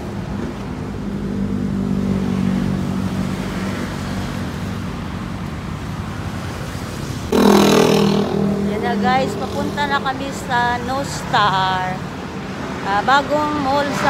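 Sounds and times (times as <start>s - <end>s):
road traffic: 0.0s - 14.0s
low engine hum: 7.3s - 12.3s
loud low hum: 7.3s - 12.4s.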